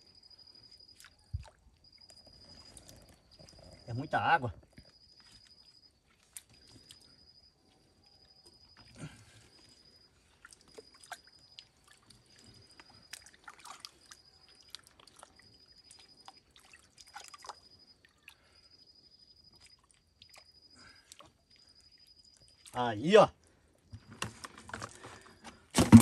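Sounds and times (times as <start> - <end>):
faint high chirp: 0.0 - 24.2
hands squelching in muddy water: 8.9 - 18.5.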